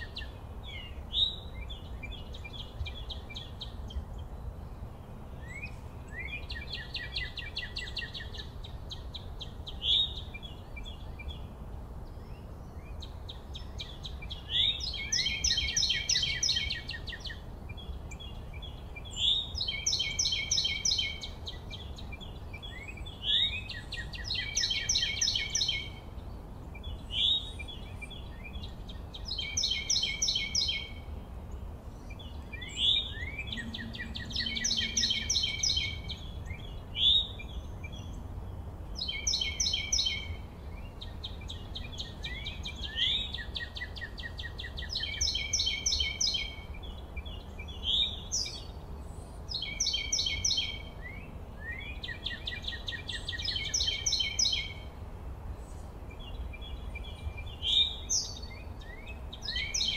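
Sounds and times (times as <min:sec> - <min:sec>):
songbirds trilling: 0:00.0 - 0:59.9.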